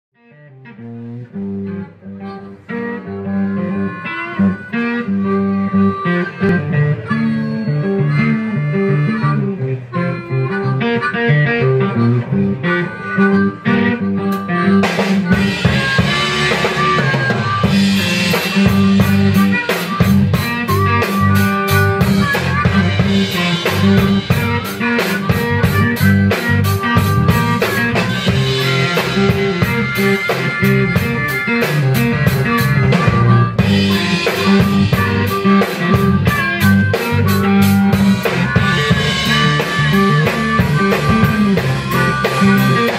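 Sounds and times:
electric blues band: 0:00.2 - 0:42.9
electric guitar: 0:00.2 - 0:42.9
drum kit beat: 0:10.5 - 0:42.9.

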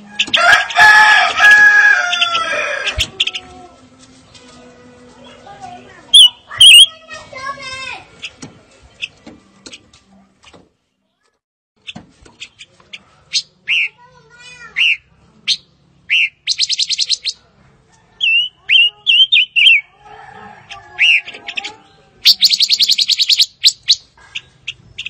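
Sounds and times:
bird singing whistled notes: 0:06.1 - 0:06.9, 0:14.8 - 0:17.4, 0:18.2 - 0:19.8, 0:22.2 - 0:24.1
bird rattling trills: 0:22.2 - 0:24.0.

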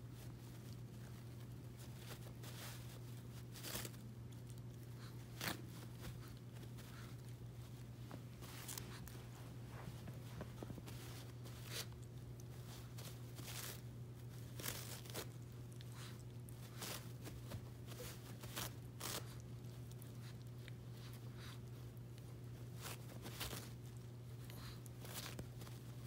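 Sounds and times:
steady low hum: 0:00.0 - 0:26.0
dog tearing paper: 0:00.5 - 0:07.2, 0:10.9 - 0:20.0, 0:22.7 - 0:24.0.

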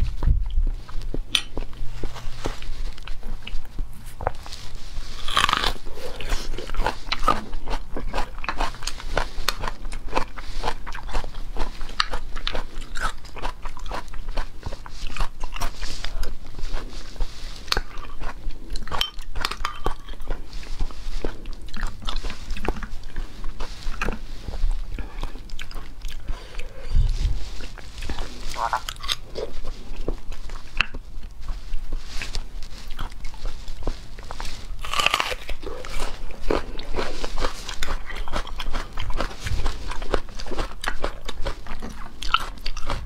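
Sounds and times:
chewing with clicking mouth sounds: 0:06.2 - 0:16.9, 0:17.7 - 0:24.2, 0:32.9 - 0:43.0.

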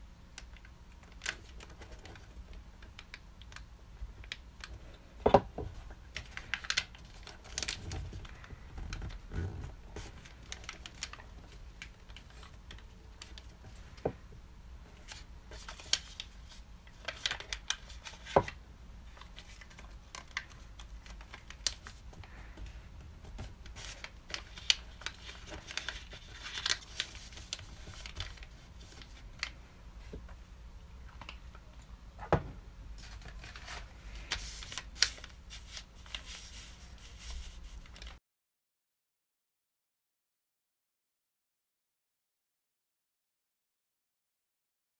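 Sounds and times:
paper rustling and crinkling: 0:00.6 - 0:30.4, 0:31.1 - 0:38.2
sharp paper clicks: 0:23.2 - 0:29.6.

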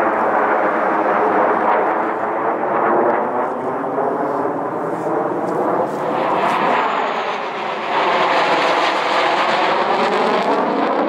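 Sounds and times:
jet noise passing overhead: 0:00.0 - 0:11.0.

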